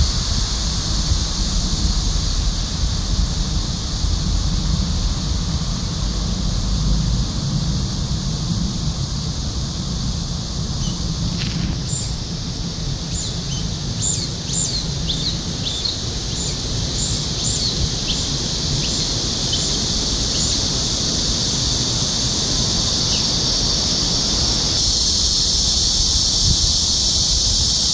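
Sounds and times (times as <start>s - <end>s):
low rumble: 0.0s - 18.8s
cicadas droning: 0.0s - 27.9s
squeaky bird calls: 10.8s - 12.2s, 13.1s - 20.8s.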